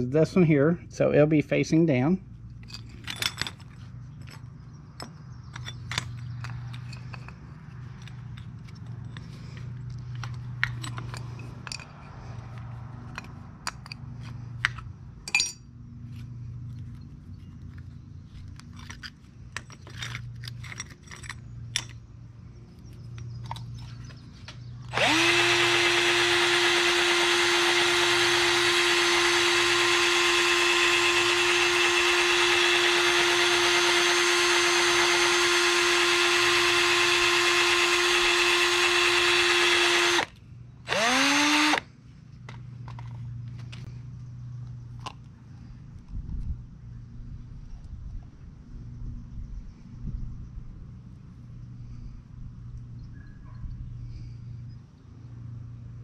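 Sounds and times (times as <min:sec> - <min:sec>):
metal parts clicking and tapping: 0:17.7 - 0:22.0
motor whining: 0:24.9 - 0:40.3, 0:40.9 - 0:41.8.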